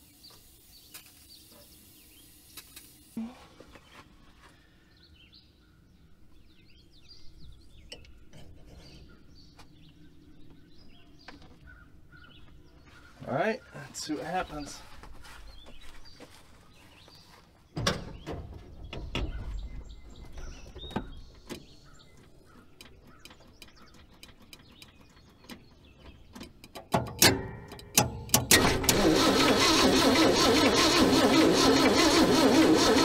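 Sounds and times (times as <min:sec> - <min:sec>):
clicks and knocks: 0:17.8 - 0:28.9
starter cranking engine: 0:28.0 - 0:33.0.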